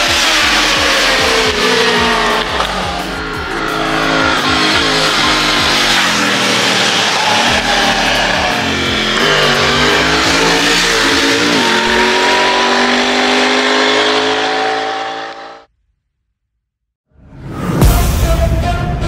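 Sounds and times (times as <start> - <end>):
motorcycle engine accelerating: 0.0 - 15.7.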